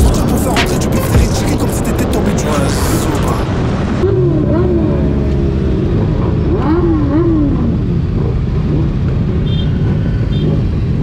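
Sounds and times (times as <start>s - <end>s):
motorcycle engine running: 4.0s - 11.0s.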